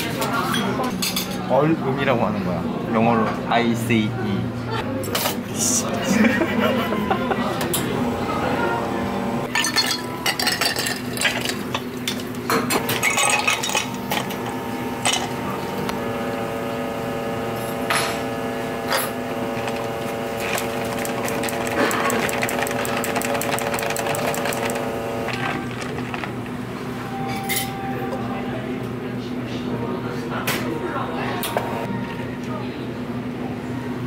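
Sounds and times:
steady hum: 5.4 - 9.6, 12.0 - 30.1
ice cubes clinking against glass: 9.5 - 11.8.

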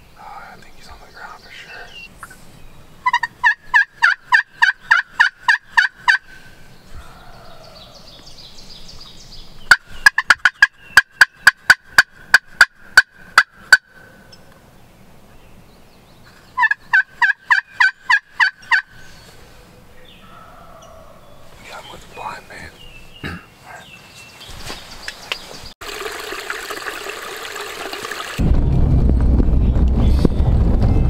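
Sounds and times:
turkey call yelps and clucks: 3.0 - 6.3, 16.6 - 18.9.

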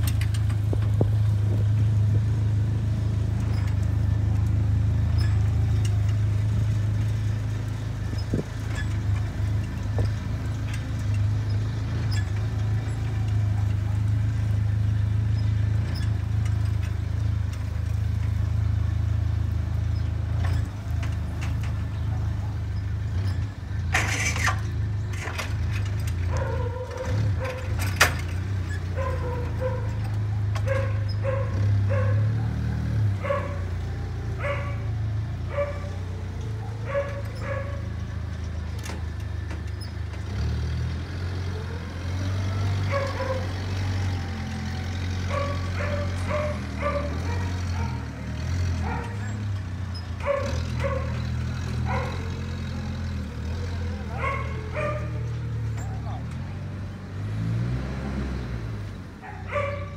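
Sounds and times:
forklift engine running: 0.0 - 59.9
dog barking: 22.1 - 22.7, 26.3 - 27.7, 28.9 - 38.0, 42.9 - 43.5, 45.3 - 48.1, 48.8 - 49.4, 50.2 - 51.2, 51.8 - 52.9, 53.9 - 56.3, 59.2 - 59.9.

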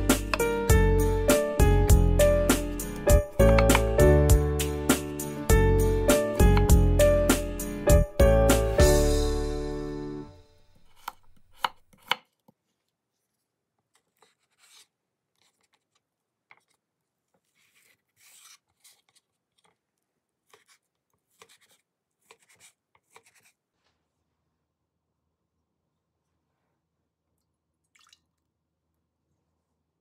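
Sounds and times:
knife chopping onto wooden board: 3.1 - 4.1, 10.8 - 12.3.

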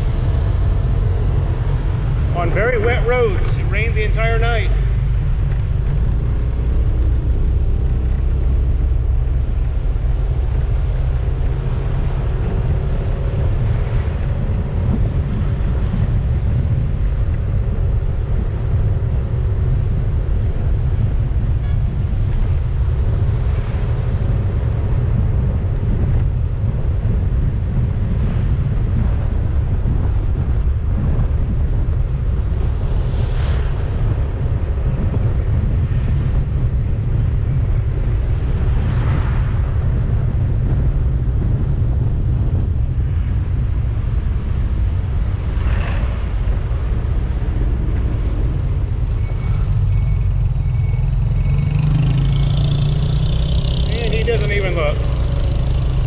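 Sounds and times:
wind buffeting microphone: 0.0 - 56.0
motorcycle engine droning: 47.3 - 56.0.

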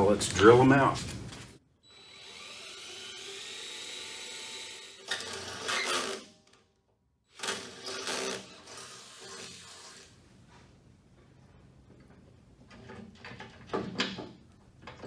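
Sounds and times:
power drill boring through steel: 1.8 - 6.3.

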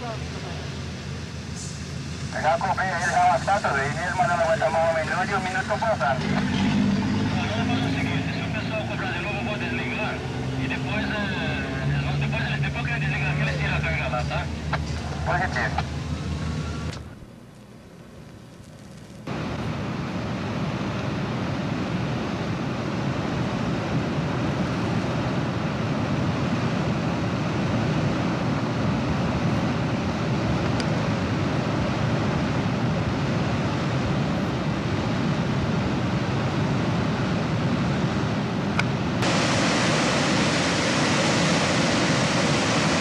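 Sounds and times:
water rushing and churning: 39.0 - 43.0.

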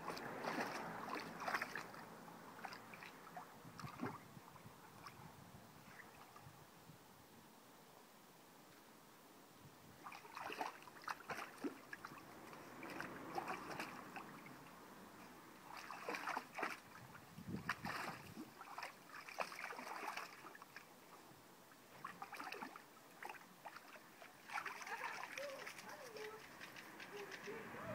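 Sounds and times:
water splashing and sloshing: 0.0 - 5.2, 10.0 - 27.9.

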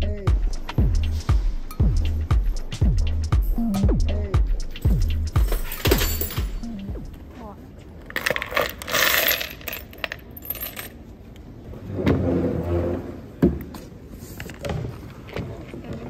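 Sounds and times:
screws clinking: 4.7 - 6.7, 8.1 - 11.0.

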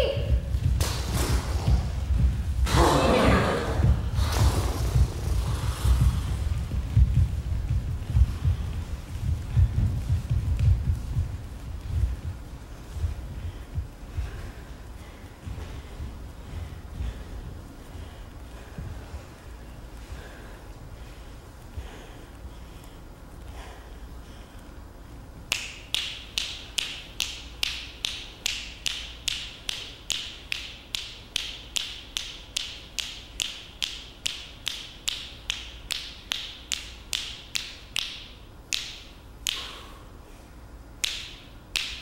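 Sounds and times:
sharp snapping clicks: 25.5 - 39.8, 41.0 - 42.0.

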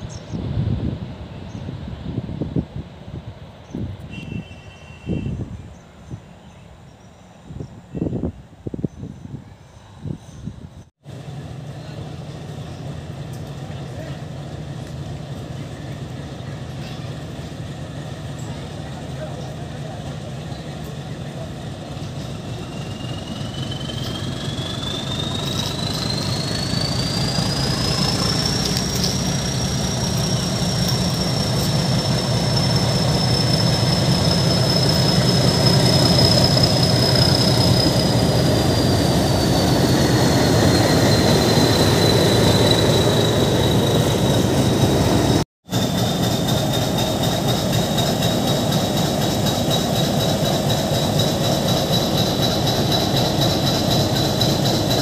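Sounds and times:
diesel locomotive passing: 0.0 - 55.0
high engine whine: 11.1 - 47.0.

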